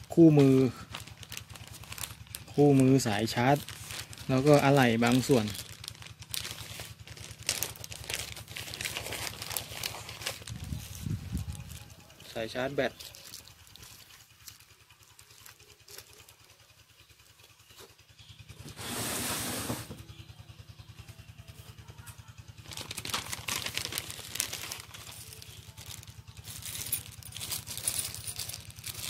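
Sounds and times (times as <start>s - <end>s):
plastic bags crinkling: 0.0s - 16.5s, 22.6s - 29.0s.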